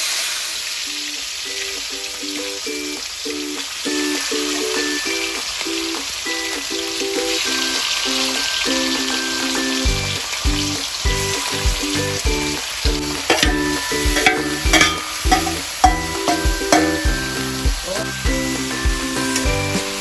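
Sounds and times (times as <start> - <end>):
meat sizzling in hot oil: 0.0 - 20.0
background music with beat: 8.1 - 20.0
spoon scraping steel bowl: 13.3 - 17.1
spoon clinking on bowl: 13.3 - 17.4.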